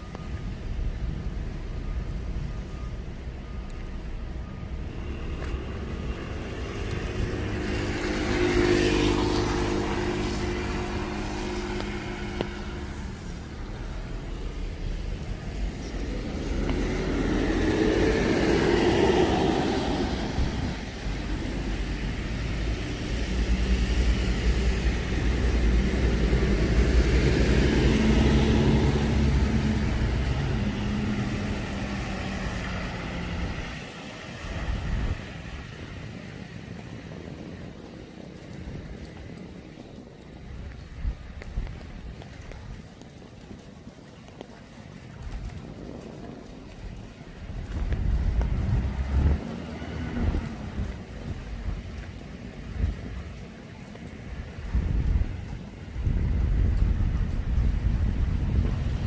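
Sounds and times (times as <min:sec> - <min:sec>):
tyres hissing on wet asphalt: 0:00.0 - 0:59.0
vehicles passing: 0:00.0 - 0:59.0.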